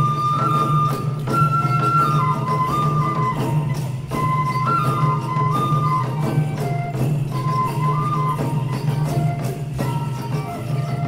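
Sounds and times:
bamboo flute melody: 0:00.0 - 0:11.0
drum beats: 0:00.0 - 0:11.0
jingling percussion: 0:00.0 - 0:11.0.

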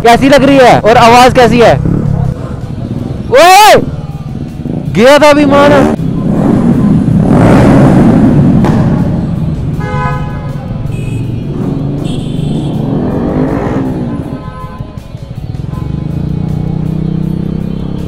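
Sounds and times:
motorbike and scooter engines: 0:00.0 - 0:18.0
vehicle horns honking: 0:09.7 - 0:15.0, 0:15.6 - 0:16.3.

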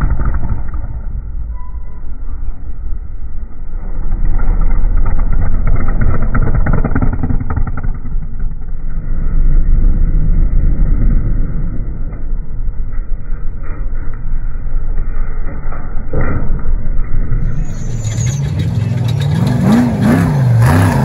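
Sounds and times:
trucks passing at full throttle: 0:17.4 - 0:21.0.

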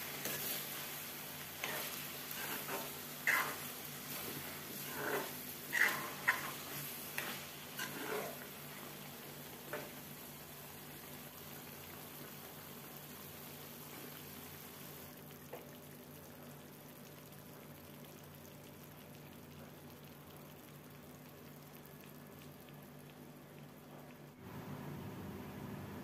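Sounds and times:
gravy bubbling: 0:01.2 - 0:09.6, 0:10.3 - 0:24.4.

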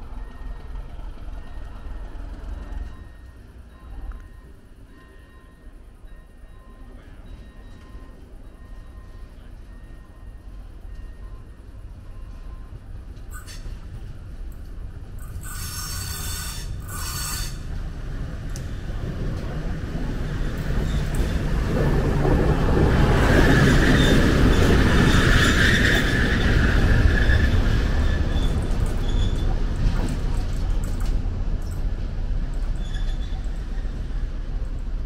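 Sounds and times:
diesel locomotive engine rumble: 0:00.0 - 0:35.0
wheels squealing: 0:15.2 - 0:17.7, 0:20.3 - 0:30.8, 0:32.7 - 0:34.2.

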